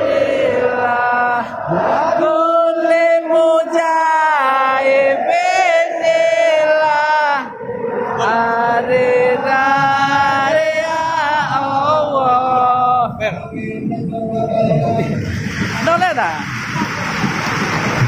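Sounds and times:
person singing chant-like notes: 0:00.0 - 0:15.3.

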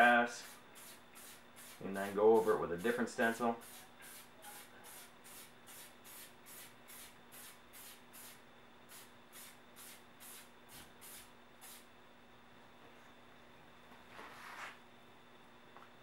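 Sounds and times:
spray paint can short bursts: 0:00.4 - 0:03.0, 0:03.6 - 0:11.9.

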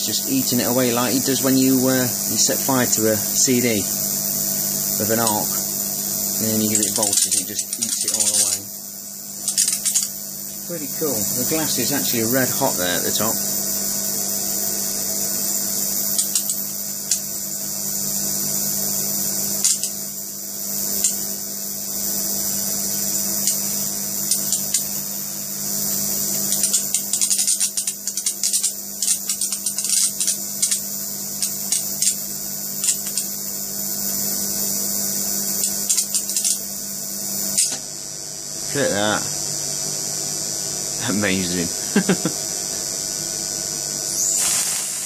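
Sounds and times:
electric arc hissing buzz: 0:00.0 - 0:45.0
electric arc crackles: 0:06.3 - 0:08.7, 0:44.2 - 0:45.0.

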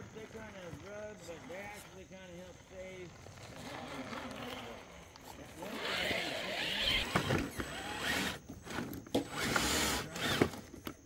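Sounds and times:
electric motor whining: 0:05.6 - 0:10.7.

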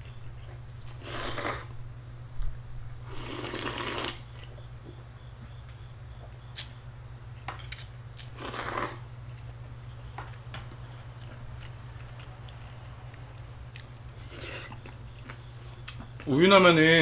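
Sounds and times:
person slurping noodles: 0:01.0 - 0:01.7, 0:03.1 - 0:04.2, 0:08.4 - 0:09.0.

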